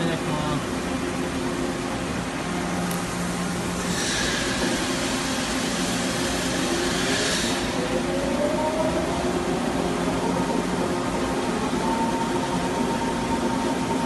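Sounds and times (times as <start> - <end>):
turning machine mechanical hum: 0.0 - 14.0
hiss: 3.8 - 7.9
whine rising in pitch: 7.7 - 14.0.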